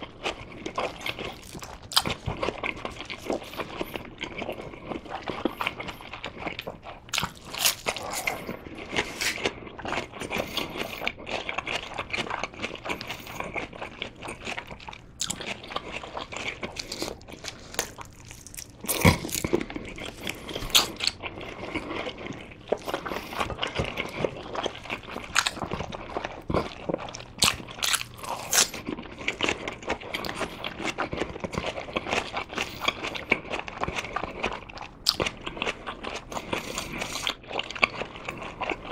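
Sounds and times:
close chewing and biting: 0.0 - 38.9.

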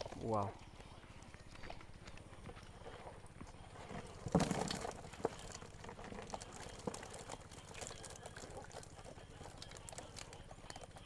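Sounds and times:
fish flapping in plastic bucket: 3.8 - 11.0.

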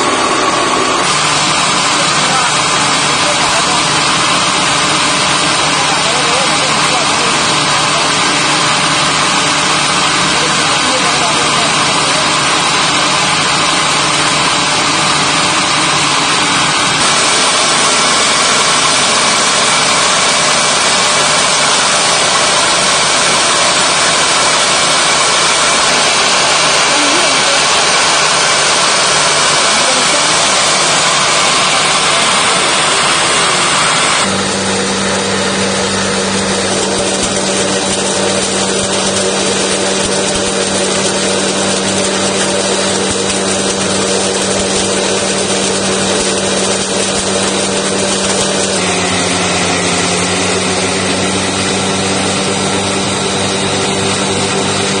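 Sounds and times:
mill rushing grain: 0.0 - 55.0
motor hum: 0.0 - 55.0.

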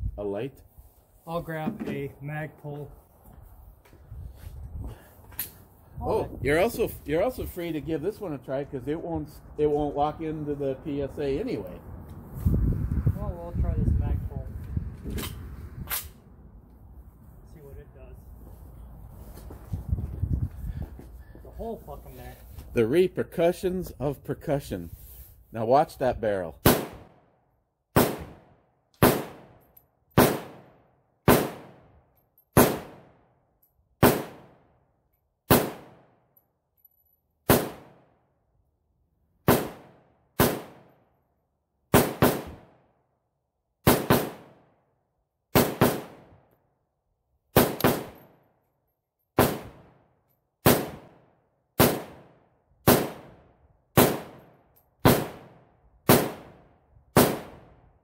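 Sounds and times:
rifle shots with ringing tail: 26.6 - 27.2, 28.0 - 29.6, 30.2 - 33.2, 34.0 - 34.7, 35.5 - 36.2, 37.5 - 38.2, 39.5 - 41.0, 41.9 - 42.8, 43.8 - 44.7, 45.6 - 46.4, 47.6 - 48.4, 49.4 - 50.0, 50.6 - 57.8.

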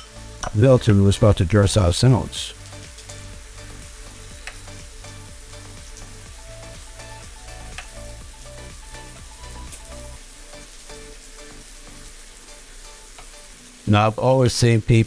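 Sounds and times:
food sizzling in a skillet: 0.0 - 14.5
low pulsing beat: 2.5 - 10.2.

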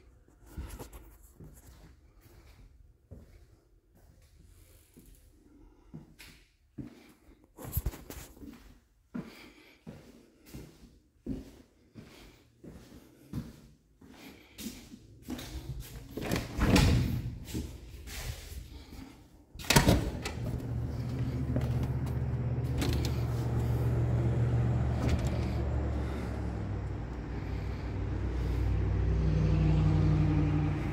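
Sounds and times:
loud door thud: 16.2 - 17.5
low mechanical hum: 19.6 - 28.1.

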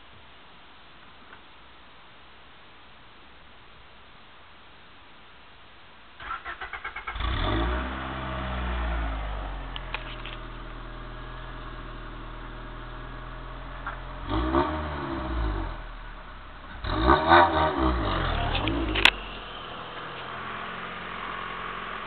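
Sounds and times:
car engine idling: 6.2 - 22.0
engine revving: 6.2 - 22.0.

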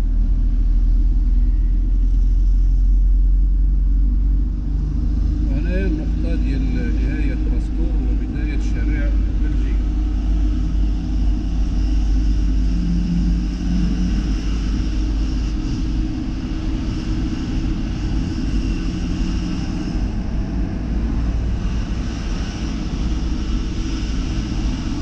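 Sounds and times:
vehicle engine and road rumble: 0.0 - 25.0.

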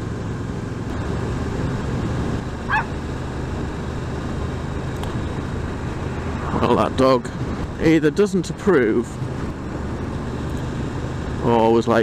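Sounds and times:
motorcycle engine running: 0.0 - 12.0
dog bark: 2.7 - 2.9.

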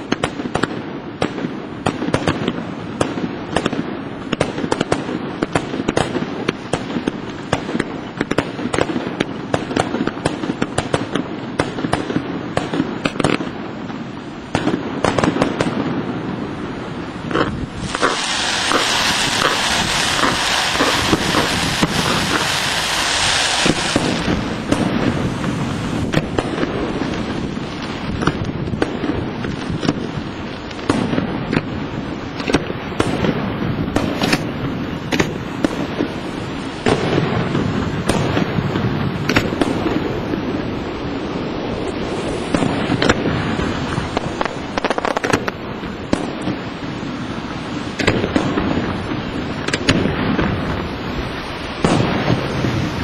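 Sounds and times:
fireworks bursts and bangs: 0.0 - 53.0
loud hiss: 16.3 - 28.2.

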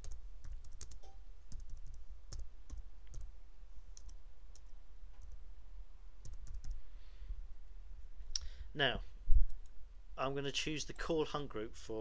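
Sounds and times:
keyboard and mouse clicks: 0.0 - 3.3, 6.2 - 6.8.

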